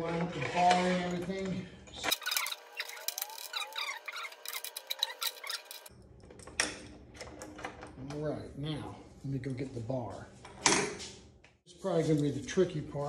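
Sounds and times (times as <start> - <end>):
small metal clicks: 2.0 - 7.7.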